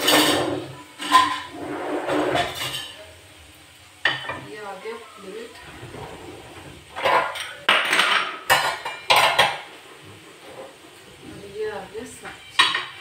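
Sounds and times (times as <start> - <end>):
crockery clattering: 0.0 - 3.0, 5.9 - 9.7, 12.3 - 13.0.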